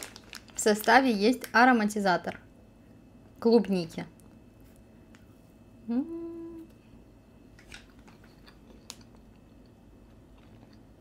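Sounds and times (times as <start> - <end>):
woman humming: 5.8 - 6.9
chewing and mouth clicks: 8.0 - 10.9.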